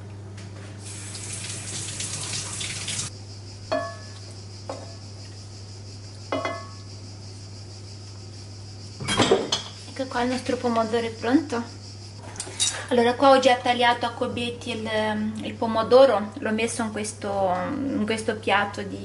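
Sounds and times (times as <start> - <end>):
water boiling in a pot: 0.8 - 3.1.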